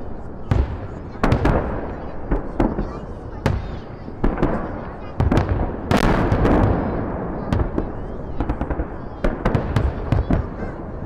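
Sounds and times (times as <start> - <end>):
firework bangs and crackling pops: 0.0 - 11.0.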